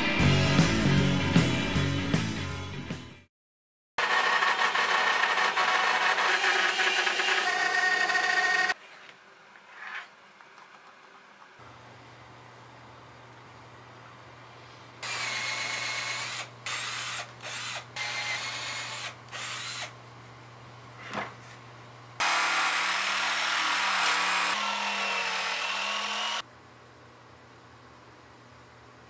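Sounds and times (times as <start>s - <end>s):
jigsaw running: 4.0s - 8.8s, 15.0s - 19.9s, 22.2s - 26.4s
power drill boring through wood: 4.0s - 8.8s, 15.0s - 19.9s, 22.2s - 26.4s.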